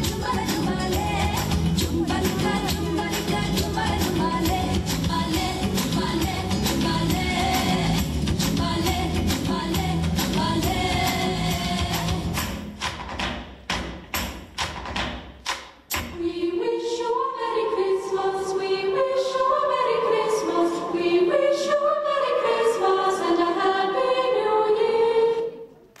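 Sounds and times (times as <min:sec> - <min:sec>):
sharp percussive beats: 0:00.0 - 0:16.3
choir singing held notes: 0:16.2 - 0:25.8.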